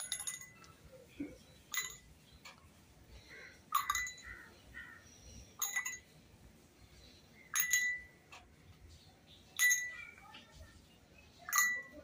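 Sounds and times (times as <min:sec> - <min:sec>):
pebbles clinking into glass of water: 0:00.0 - 0:00.7, 0:03.7 - 0:04.3, 0:05.6 - 0:06.1, 0:07.5 - 0:08.1.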